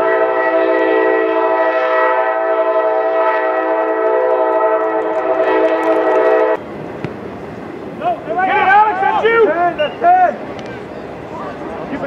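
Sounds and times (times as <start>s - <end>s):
loud horn chord: 0.0s - 6.6s.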